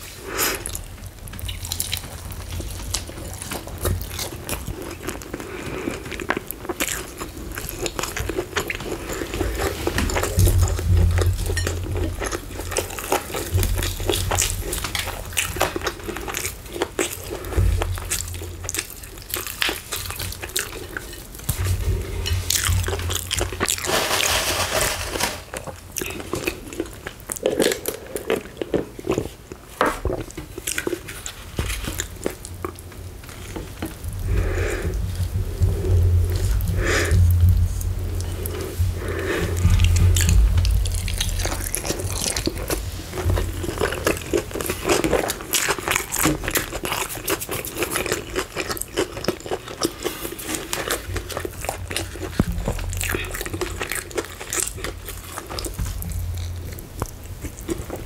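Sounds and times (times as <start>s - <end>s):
chewing: 0.0s - 24.4s, 25.4s - 58.0s
crispy chicken crunching: 0.0s - 58.0s
low thumping: 9.9s - 15.5s, 33.9s - 44.7s, 52.0s - 54.6s.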